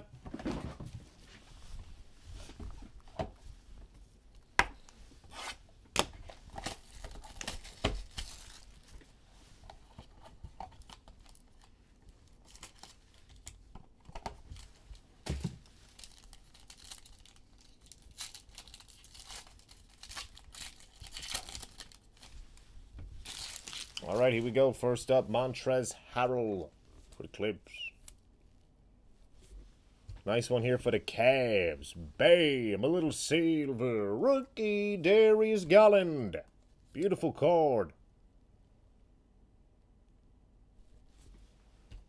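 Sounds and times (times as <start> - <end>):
plastic wrapping tearing and crinkling: 6.3 - 8.9, 10.7 - 13.6, 14.4 - 22.4, 23.2 - 24.4.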